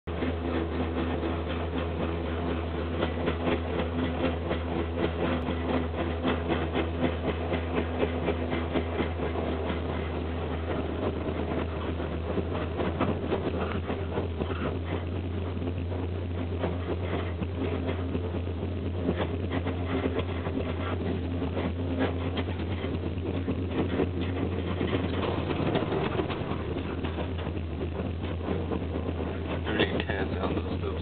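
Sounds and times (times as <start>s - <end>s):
fast uneven rattle: 0.1s - 31.0s
ski lift mechanical hum: 0.1s - 31.0s.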